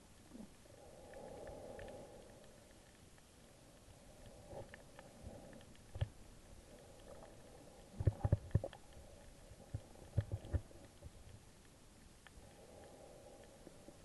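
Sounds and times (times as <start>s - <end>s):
faint underwater hum: 0.0s - 14.0s.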